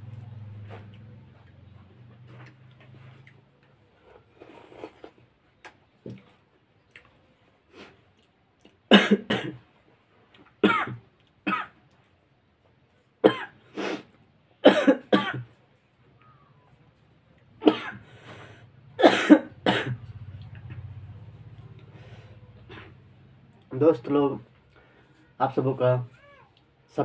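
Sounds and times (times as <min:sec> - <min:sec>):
man coughing: 0:08.9 - 0:09.6, 0:10.6 - 0:11.7, 0:13.2 - 0:13.6, 0:14.6 - 0:15.4, 0:17.6 - 0:18.0, 0:19.0 - 0:20.1
throat clearing: 0:19.0 - 0:20.1.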